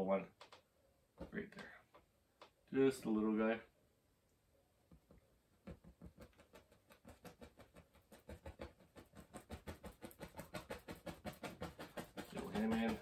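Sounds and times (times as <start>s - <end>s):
paintbrush strokes on canvas: 6.2s - 13.0s.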